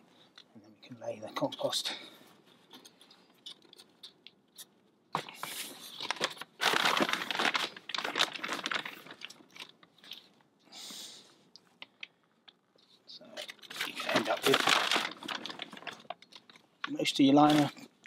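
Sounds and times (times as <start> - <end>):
plastic bag crinkling: 5.5 - 10.3, 13.3 - 17.9.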